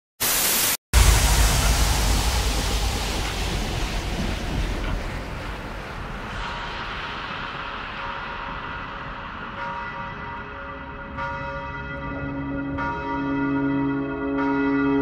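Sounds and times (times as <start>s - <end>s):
tv static hiss: 0.2s - 0.8s
wind-like rushing with deep rumble: 1.0s - 11.2s.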